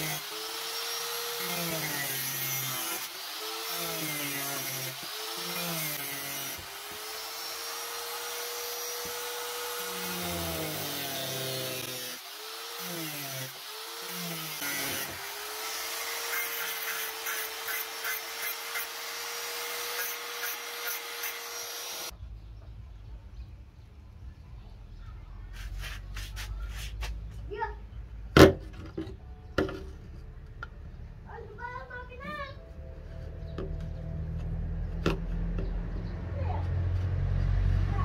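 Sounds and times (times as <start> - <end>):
angle grinder cutting plastic pipe: 0.0 - 22.1.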